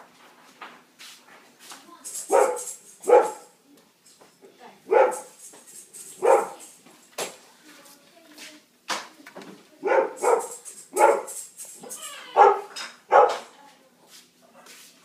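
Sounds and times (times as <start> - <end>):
dog-like barks: 2.3 - 3.6, 4.9 - 5.4, 6.2 - 6.7, 9.8 - 11.4, 12.4 - 13.5.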